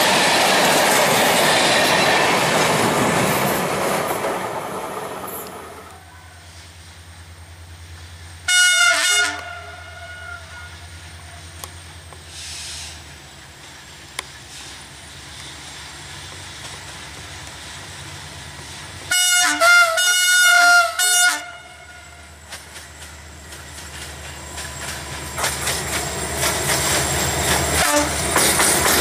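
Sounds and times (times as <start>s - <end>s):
train passing: 0.0s - 29.0s
locomotive horn blasts: 8.5s - 11.4s, 19.1s - 22.3s, 27.8s - 28.2s
wheels clacking over rail joints: 22.4s - 29.0s.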